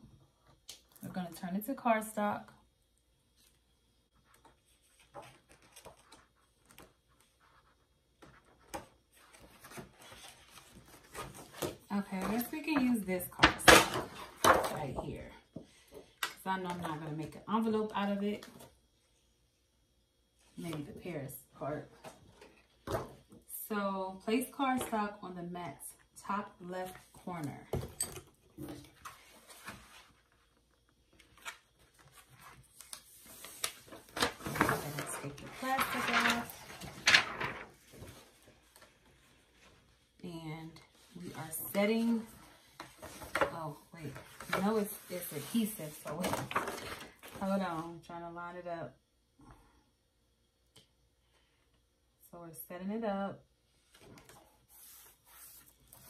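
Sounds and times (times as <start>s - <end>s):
paper rustling: 4.2s - 13.0s, 31.1s - 39.9s.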